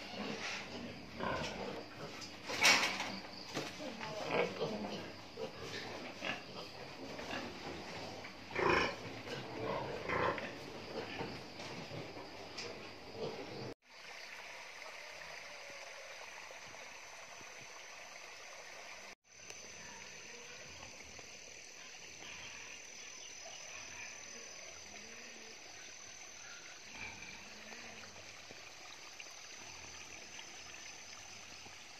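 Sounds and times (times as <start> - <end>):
pigs grunting: 0.0 - 2.6, 3.8 - 13.8, 26.8 - 27.9
stream trickling: 12.8 - 31.9.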